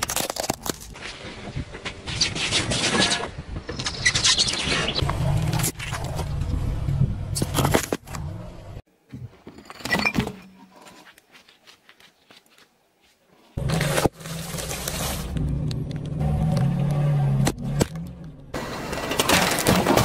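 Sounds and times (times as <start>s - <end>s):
crackles and crunches under tyres: 0.0s - 8.3s, 10.8s - 17.0s
loud crunch of chalk: 10.9s - 15.4s.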